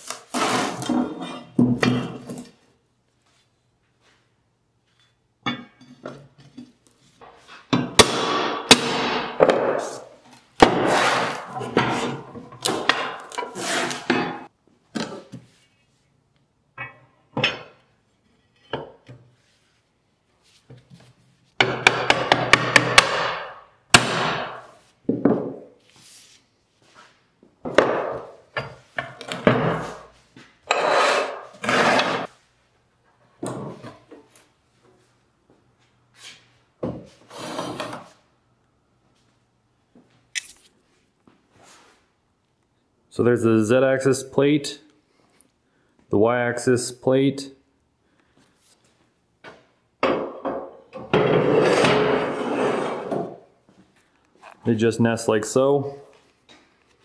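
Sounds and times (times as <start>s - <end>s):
steel plates scraping and clanking: 30.7s - 32.3s.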